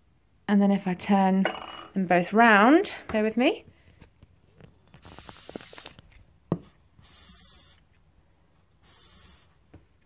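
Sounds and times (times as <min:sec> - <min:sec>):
hissy rubbing of dolls handled: 0:04.4 - 0:10.0.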